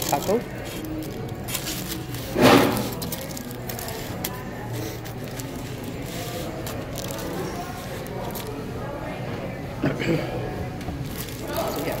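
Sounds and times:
foil wrapper crinkling: 0:00.0 - 0:08.7, 0:11.0 - 0:12.0.

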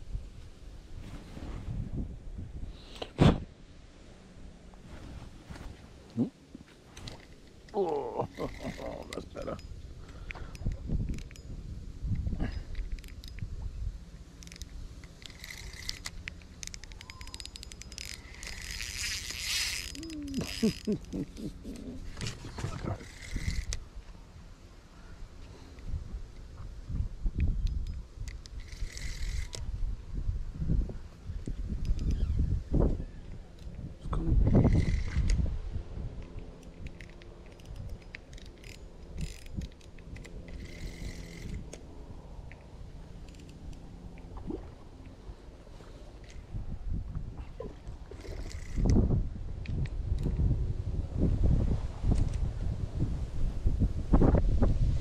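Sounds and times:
fishing reel clicking: 0:07.0 - 0:09.6, 0:10.2 - 0:11.5, 0:12.5 - 0:13.5, 0:14.4 - 0:21.9, 0:23.0 - 0:23.8, 0:27.6 - 0:29.7, 0:34.5 - 0:35.4, 0:36.2 - 0:42.6, 0:43.2 - 0:43.8, 0:48.1 - 0:49.0
fishing reel line buzzing: 0:07.0 - 0:11.5, 0:14.4 - 0:23.8, 0:27.7 - 0:29.8, 0:34.5 - 0:35.4, 0:36.5 - 0:41.9, 0:48.1 - 0:49.1.

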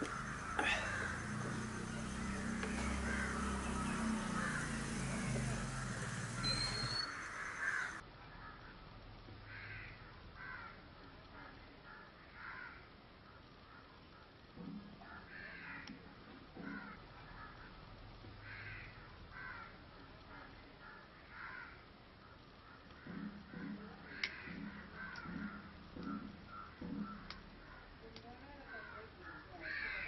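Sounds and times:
crow cawing: 0:00.0 - 0:08.8, 0:09.5 - 0:13.0, 0:15.0 - 0:16.0, 0:16.6 - 0:17.8, 0:18.4 - 0:30.0.

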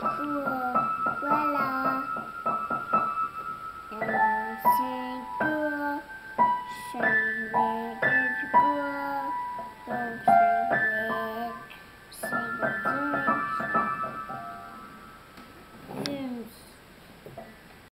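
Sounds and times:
girl singing without words: 0:00.0 - 0:02.4, 0:03.9 - 0:14.2
piano notes struck: 0:00.0 - 0:16.0.

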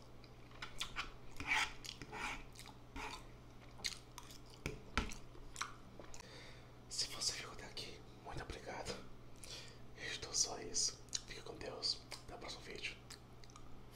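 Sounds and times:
chewing and wet mouth sounds: 0:00.2 - 0:06.2, 0:13.0 - 0:13.8.

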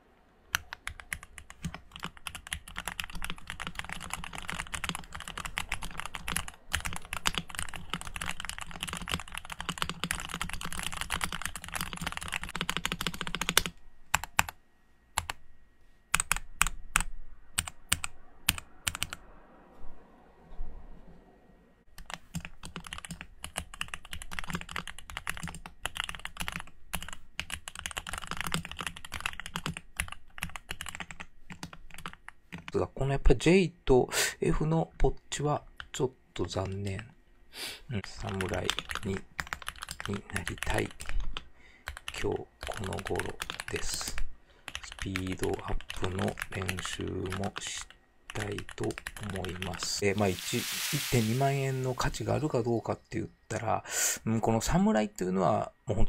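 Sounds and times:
fast mechanical keyboard typing: 0:00.5 - 0:14.6, 0:15.2 - 0:15.4, 0:16.2 - 0:19.2, 0:21.9 - 0:32.8, 0:38.0 - 0:50.3.

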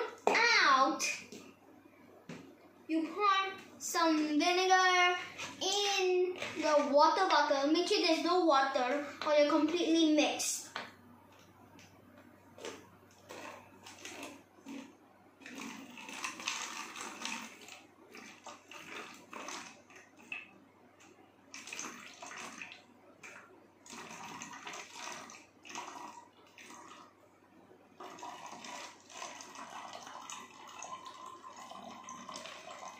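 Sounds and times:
liquid pouring and gurgling: 0:04.9 - 0:08.2, 0:12.6 - 0:20.6, 0:21.5 - 0:27.2, 0:28.0 - 0:32.9.

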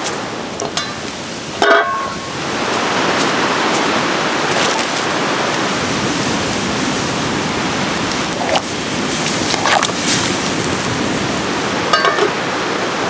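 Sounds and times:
fire crackling pops: 0:00.0 - 0:11.9
soup boiling and bubbling: 0:00.4 - 0:11.9.

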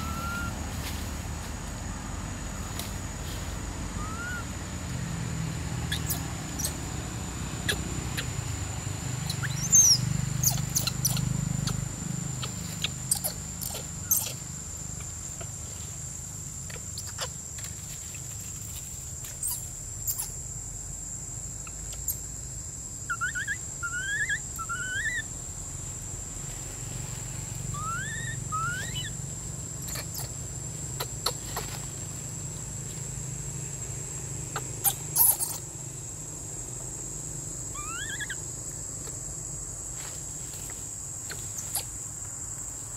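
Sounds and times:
young monkey squeaking: 0:00.0 - 0:00.6, 0:04.0 - 0:04.5, 0:05.9 - 0:06.8, 0:07.6 - 0:08.4, 0:09.2 - 0:15.5, 0:16.7 - 0:17.4, 0:19.4 - 0:20.4, 0:23.1 - 0:25.3, 0:27.7 - 0:29.2, 0:29.8 - 0:30.4, 0:31.0 - 0:31.8, 0:34.5 - 0:35.7, 0:37.7 - 0:38.4, 0:41.2 - 0:42.0.

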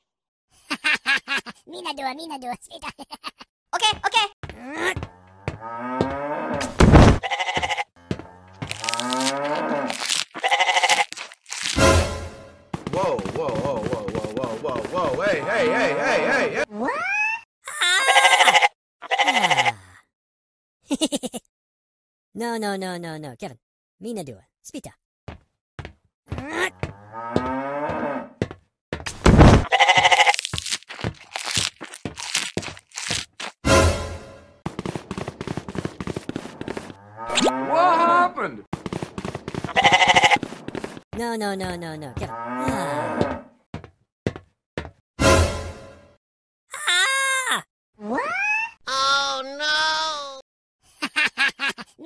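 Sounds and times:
cow mooing: 0:05.1 - 0:06.6, 0:08.0 - 0:10.7, 0:26.9 - 0:28.4, 0:42.3 - 0:43.6
thump: 0:06.6 - 0:07.2, 0:29.2 - 0:29.7
sheep bleating: 0:07.2 - 0:07.9, 0:08.6 - 0:11.3, 0:18.1 - 0:19.7, 0:29.7 - 0:30.8, 0:39.7 - 0:40.4.

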